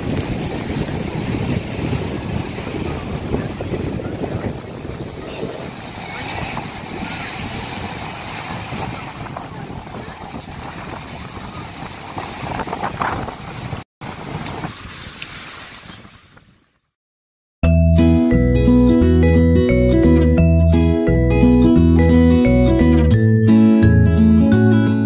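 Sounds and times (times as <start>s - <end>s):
surf washing onto beach: 0.0s - 16.5s
wind on microphone: 0.0s - 16.7s.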